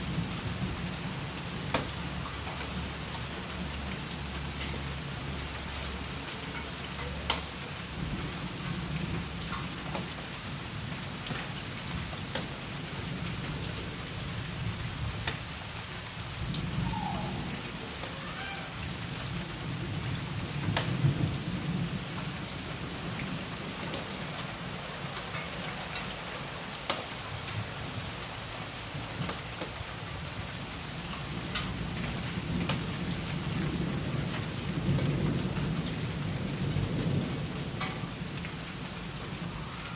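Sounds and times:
steady rain falling: 0.0s - 39.9s
low rolls of thunder: 16.3s - 18.0s.

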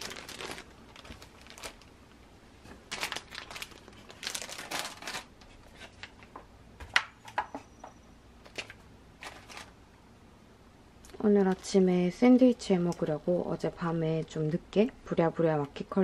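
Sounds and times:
plastic bags and paper rustling: 0.0s - 1.9s, 2.6s - 6.4s, 8.4s - 9.8s, 11.1s - 12.2s.

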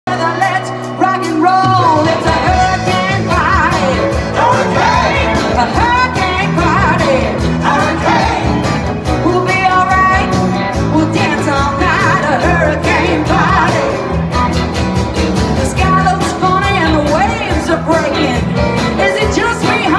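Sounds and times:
person singing: 0.1s - 14.1s
bass and drums: 0.1s - 19.9s
live rock band playing: 0.1s - 19.9s.

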